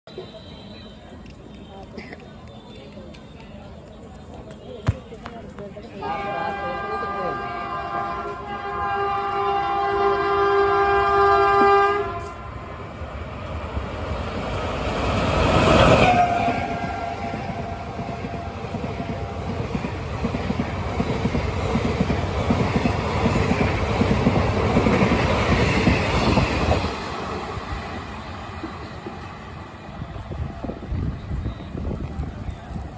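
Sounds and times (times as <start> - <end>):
train air horn: 6.0 - 12.8, 15.8 - 17.6
train rushing past: 6.0 - 32.9.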